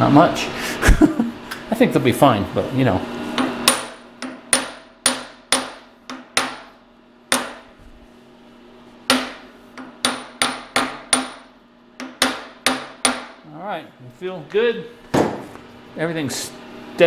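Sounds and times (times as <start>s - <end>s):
hammer tapping on steel: 3.4s - 6.7s, 7.3s - 7.6s, 9.1s - 13.4s.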